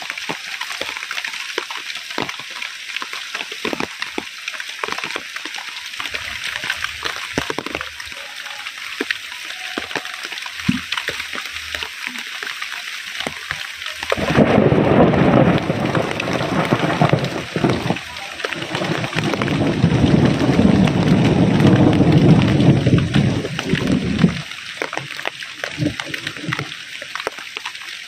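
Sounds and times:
heavy rain falling: 0:00.0 - 0:28.0
thunder rumbling: 0:14.1 - 0:24.5.

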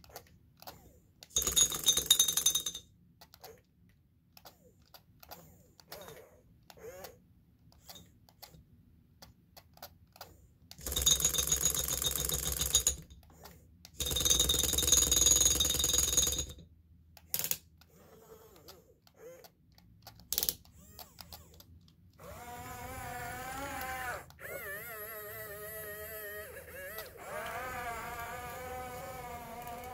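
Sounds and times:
electric motor grinding whirs: 0:22.2 - 0:29.9.

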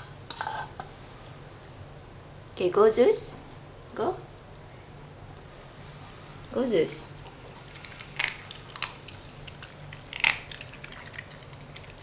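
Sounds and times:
dog crunching bones: 0:07.2 - 0:12.0.

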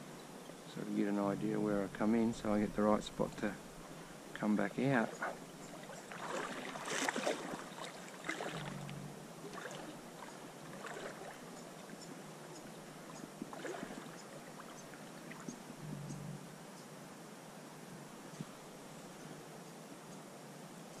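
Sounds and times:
wading through shallow water: 0:00.0 - 0:15.8.

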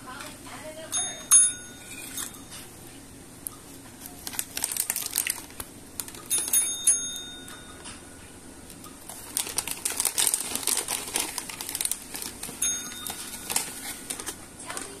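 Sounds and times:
pet call bell ring: 0:00.9 - 0:02.6, 0:06.3 - 0:08.0, 0:12.6 - 0:13.5
crinkling clicks: 0:04.0 - 0:06.7.

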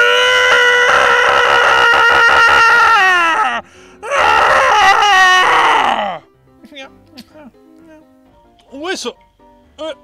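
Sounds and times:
elephant seal crying: 0:00.0 - 0:06.2.

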